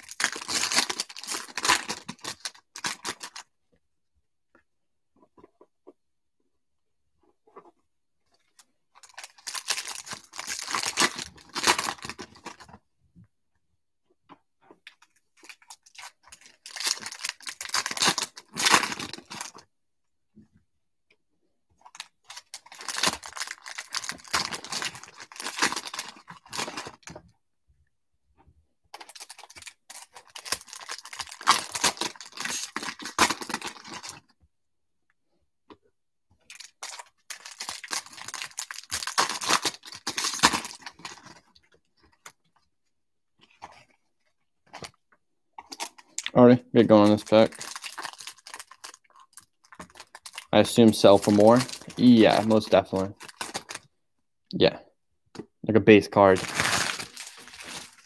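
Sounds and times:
foil wrappers crinkling and tearing: 0:00.0 - 0:03.4, 0:09.0 - 0:12.6, 0:15.4 - 0:19.6, 0:21.9 - 0:27.2, 0:29.0 - 0:34.3, 0:36.5 - 0:41.6, 0:46.9 - 0:53.9, 0:56.2 - 0:58.0.

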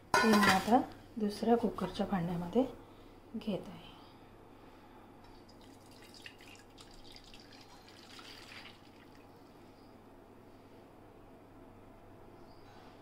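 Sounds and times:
liquid splashing and trickling: 0:05.3 - 0:09.5.

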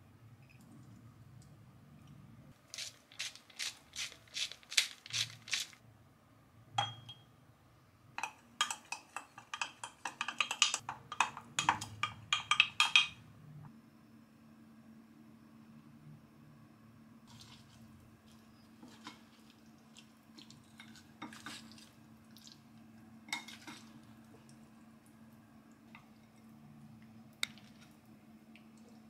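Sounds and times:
spoon stirring in a glass: 0:08.2 - 0:13.2.

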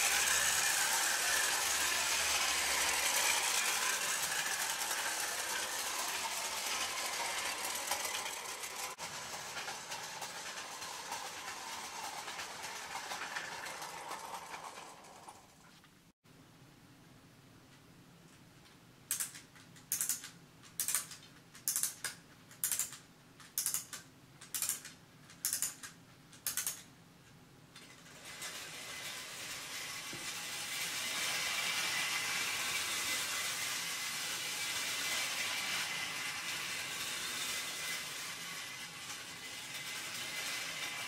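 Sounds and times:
clockwork motor whirring rattle: 0:00.0 - 0:15.7, 0:27.8 - 0:41.0
clockwork spring ratcheting clicks: 0:19.1 - 0:26.9.

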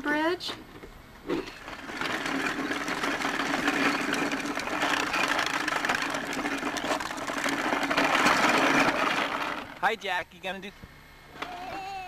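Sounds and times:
plastic wheels rolling on asphalt: 0:00.7 - 0:10.0.

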